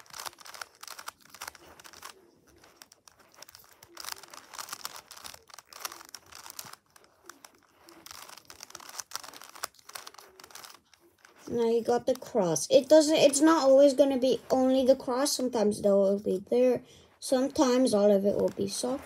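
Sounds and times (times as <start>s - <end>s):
speed cube clicking: 0.0s - 13.8s.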